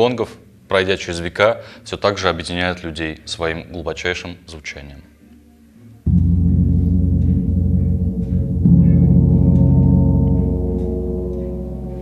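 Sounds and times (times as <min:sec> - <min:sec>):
large gong ringing: 0:06.1 - 0:12.0.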